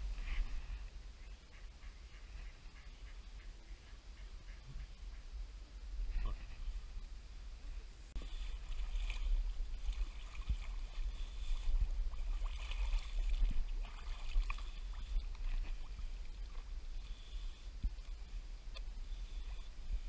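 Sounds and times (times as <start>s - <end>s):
wind rumble on microphone: 3.3s - 20.0s
water sloshing around boat: 8.2s - 20.0s.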